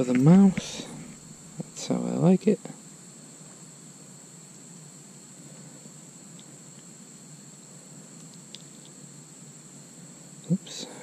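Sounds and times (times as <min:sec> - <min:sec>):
insects trilling: 0:00.0 - 0:11.0
low background hiss: 0:00.0 - 0:11.0
faint ticks: 0:08.2 - 0:09.0.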